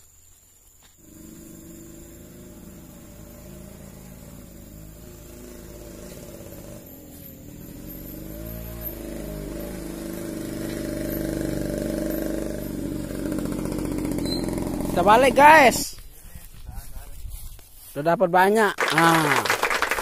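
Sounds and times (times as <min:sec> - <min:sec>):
small motorcycle engine running: 0:01.0 - 0:15.8.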